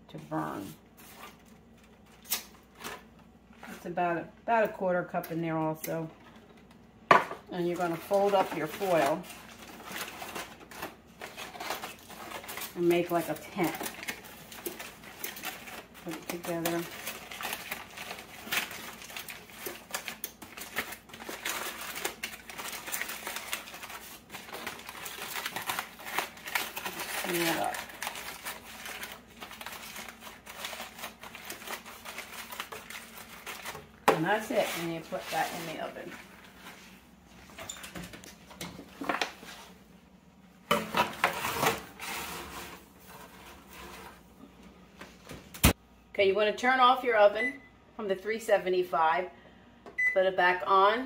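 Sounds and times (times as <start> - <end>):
aluminum foil crinkling: 0.5 - 3.9, 7.4 - 39.8
foil pan scraping on oven rack: 34.1 - 36.2, 40.9 - 44.2.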